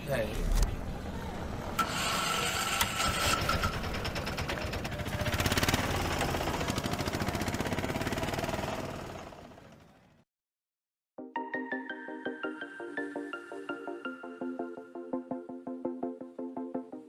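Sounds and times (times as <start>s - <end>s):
motorcycle engine running: 2.2s - 10.2s.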